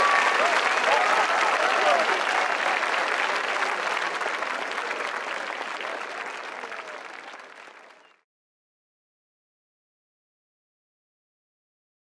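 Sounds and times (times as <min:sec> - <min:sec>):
crowd applauding: 0:00.0 - 0:08.2.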